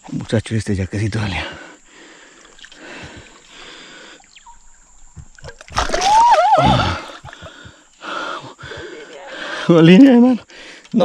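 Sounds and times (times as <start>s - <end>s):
fish thrashing and splashing: 5.2s - 7.8s
wavering high-pitched cry: 5.9s - 7.4s.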